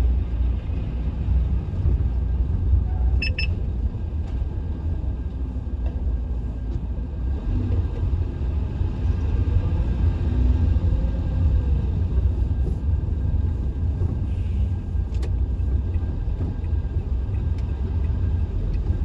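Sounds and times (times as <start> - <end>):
vehicle rumble on road: 0.0 - 19.0
short electronic beeps: 3.2 - 3.6.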